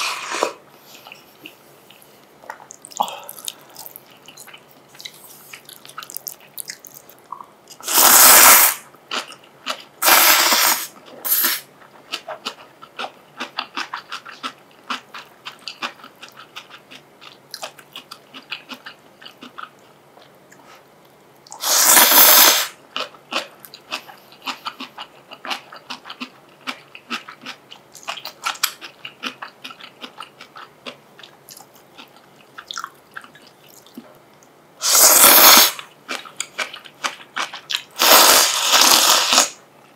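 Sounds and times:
loud noodle slurping: 0.0s - 0.6s, 7.8s - 8.8s, 10.0s - 11.6s, 21.6s - 22.8s, 34.8s - 35.8s, 38.0s - 39.6s
wet chewing: 1.0s - 7.8s, 23.0s - 34.1s.

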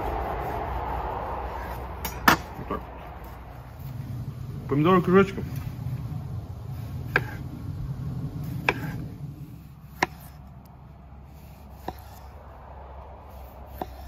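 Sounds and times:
knife slicing tomato: 6.9s - 7.5s, 8.4s - 10.5s, 11.3s - 12.4s, 13.3s - 14.0s.

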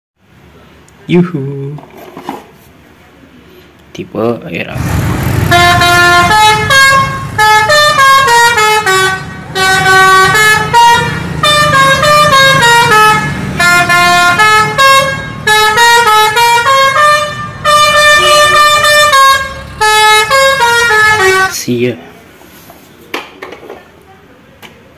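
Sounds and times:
bus engine running: 4.8s - 21.4s
multi-tone musical bus horn: 5.3s - 21.6s.

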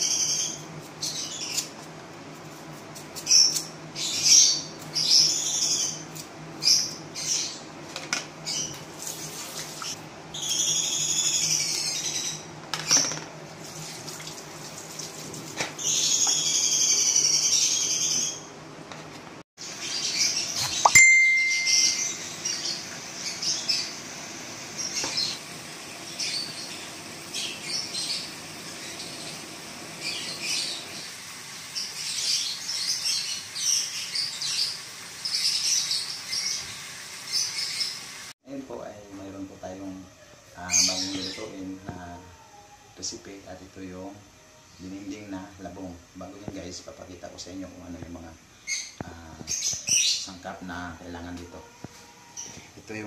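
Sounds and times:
birds chirping and calling: 0.0s - 1.8s, 3.2s - 7.8s, 8.4s - 8.8s, 9.8s - 13.2s, 15.8s - 18.5s, 19.6s - 24.0s, 24.8s - 25.4s, 26.0s - 38.3s, 40.6s - 42.2s, 48.6s - 52.7s.

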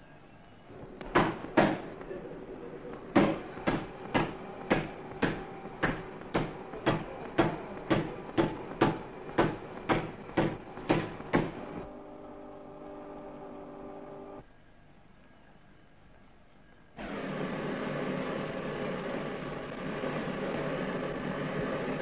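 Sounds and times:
steady hum with held tones: 0.0s - 17.0s
workshop machine knocking: 0.7s - 11.9s.

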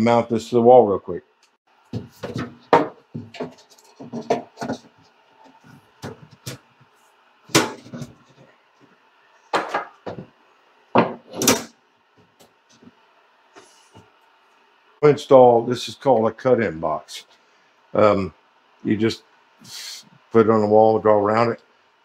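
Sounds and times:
metal knocks clunks and scrapes: 2.0s - 6.6s, 7.5s - 8.5s.

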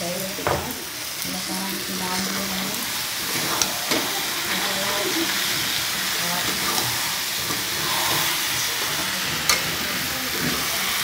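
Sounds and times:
food sizzling in oil: 0.0s - 11.0s
spatula scraping pan: 2.1s - 11.0s.

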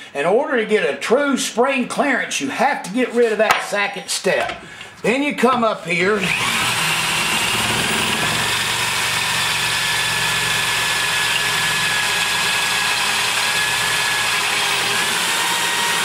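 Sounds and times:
drill running steadily: 6.2s - 16.0s.

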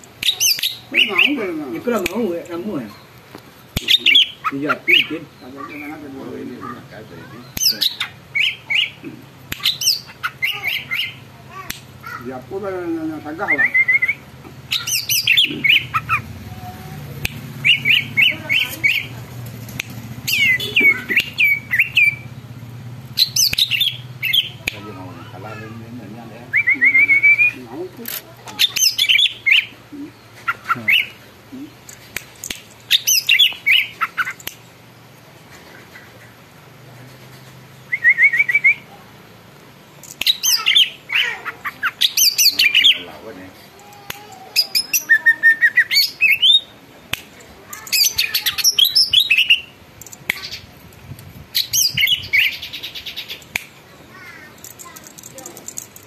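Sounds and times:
bird whistling and trilling: 0.2s - 1.4s, 7.5s - 9.0s, 9.6s - 11.2s, 13.4s - 16.2s, 17.6s - 19.1s, 20.3s - 22.3s, 23.2s - 24.6s, 26.5s - 27.6s, 28.6s - 29.8s, 32.9s - 34.4s, 37.9s - 38.9s, 44.6s - 46.7s, 47.9s - 49.7s, 51.6s - 53.4s.

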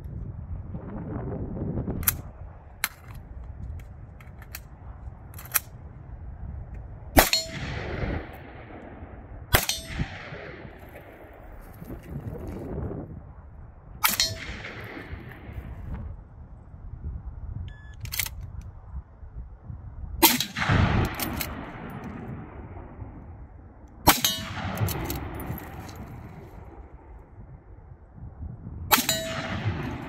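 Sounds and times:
rolling echo: 7.1s - 12.1s, 14.0s - 16.2s, 20.2s - 27.9s, 28.9s - 30.0s
rifle shots: 7.2s - 11.6s, 14.0s - 15.9s, 20.2s - 27.0s, 28.9s - 30.0s.

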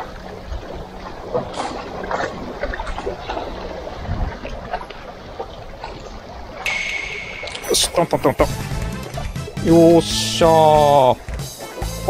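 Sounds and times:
wind buffeting microphone: 2.4s - 6.0s.

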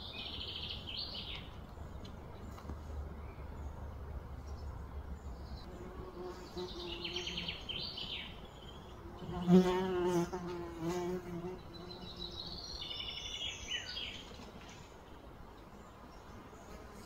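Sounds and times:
small birds chirping: 0.0s - 17.0s
flying insect buzzing: 9.1s - 12.3s.

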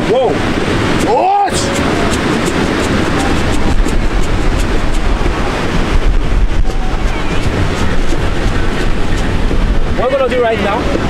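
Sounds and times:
ocean surf breaking: 0.0s - 11.0s
wind buffeting microphone: 0.0s - 11.0s.

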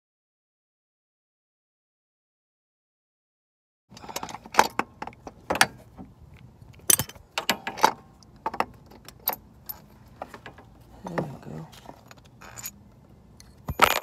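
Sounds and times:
metallic clicks and clanks: 3.9s - 6.1s, 6.7s - 10.7s, 13.4s - 14.0s.

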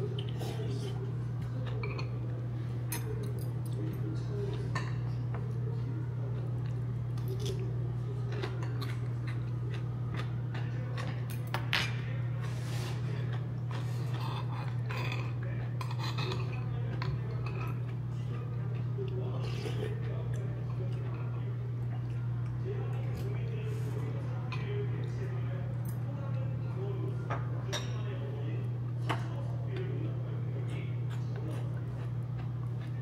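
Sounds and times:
utensils clinking against dishes: 0.0s - 5.6s, 10.1s - 21.4s, 22.9s - 30.0s.

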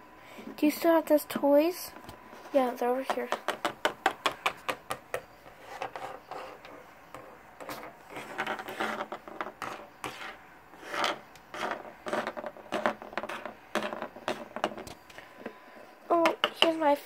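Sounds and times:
plastic toys tapping on wooden table: 3.0s - 6.0s, 7.2s - 15.0s, 16.2s - 16.8s.

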